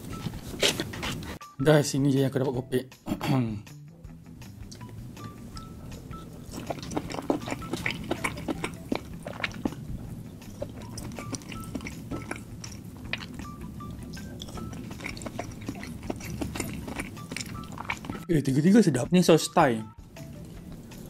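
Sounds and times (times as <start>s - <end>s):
wet chewing: 4.7s - 18.3s
mouth clicks: 5.6s - 18.3s.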